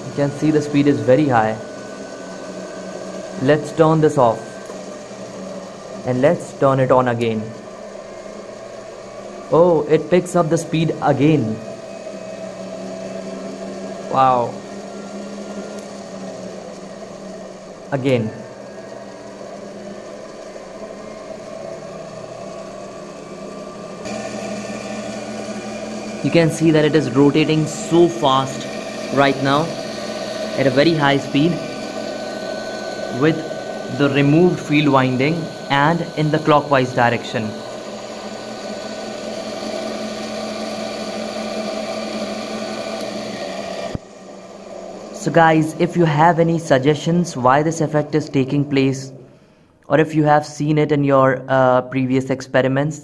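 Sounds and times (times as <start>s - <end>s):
electric motor whirring: 0.0s - 49.7s.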